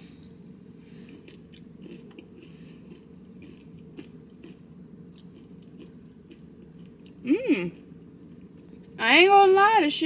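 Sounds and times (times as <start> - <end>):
person chewing crunchy food: 0.8 - 7.2.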